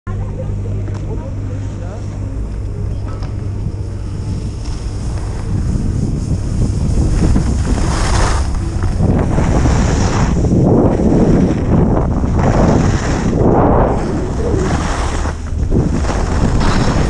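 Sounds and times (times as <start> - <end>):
wind rushing over microphone: 2.2 - 17.0
skis scraping on snow: 4.2 - 17.0.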